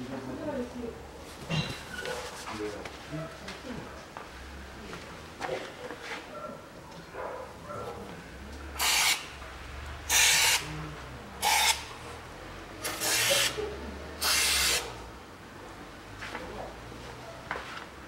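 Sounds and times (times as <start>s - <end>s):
aerosol can spraying: 8.8s - 9.3s, 10.1s - 10.6s, 12.8s - 13.6s, 14.2s - 14.9s.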